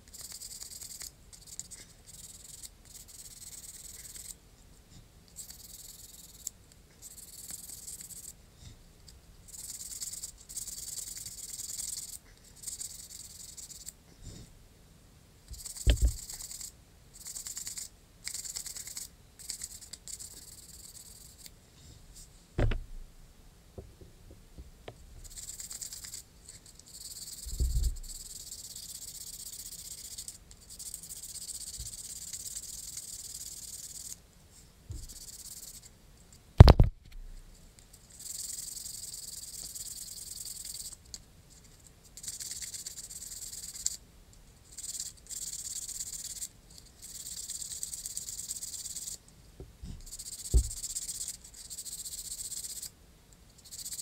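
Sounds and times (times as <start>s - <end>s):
short knocks: 22.6s - 23.2s.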